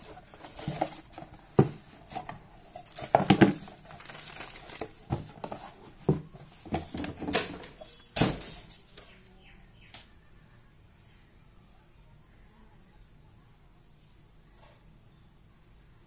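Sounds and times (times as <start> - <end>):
paper and cardboard rustling: 0.0 - 9.0.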